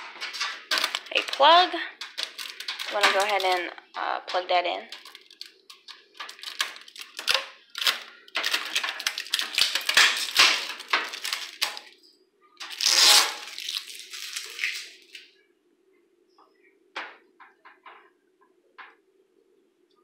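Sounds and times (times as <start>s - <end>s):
clicks and rattles: 0.0s - 3.7s, 4.3s - 11.9s
plastic crinkling: 0.0s - 15.3s.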